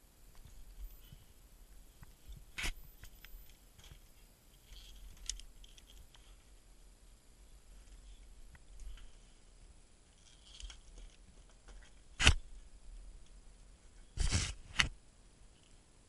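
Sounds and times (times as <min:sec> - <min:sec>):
faint ticks and rustles: 0:00.0 - 0:14.2, 0:15.0 - 0:16.0
sharp metallic click: 0:12.2 - 0:12.4
brief scrape: 0:14.2 - 0:14.9.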